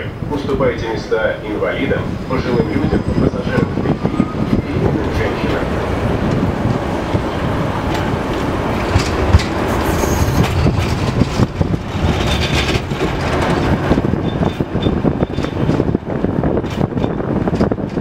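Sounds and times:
tram wheels rumbling on rail: 0.0 - 18.0
high-pitched wheel squeals: 9.7 - 10.8.

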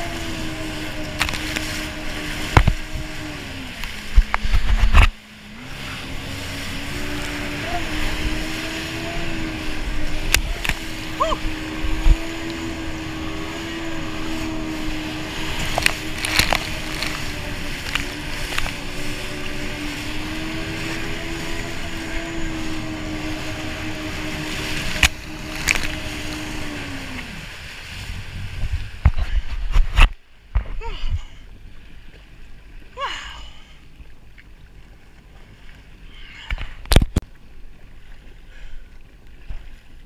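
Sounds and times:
jet ski engine at high revs: 0.0 - 30.1
hull slapping on waves: 0.0 - 30.8.

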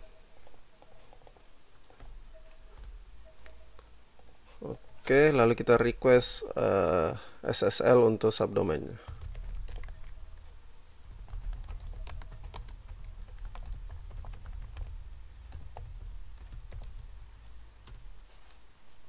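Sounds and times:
low steady hum: 0.0 - 19.0
keyboard typing clicks: 9.1 - 18.2.

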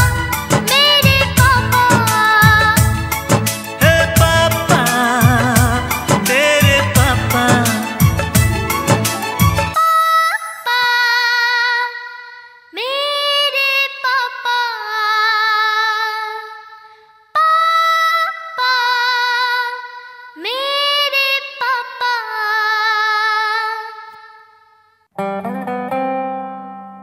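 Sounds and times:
acoustic guitar strum: 0.0 - 9.8, 25.2 - 27.0
high voice singing with vibrato: 0.0 - 24.6.

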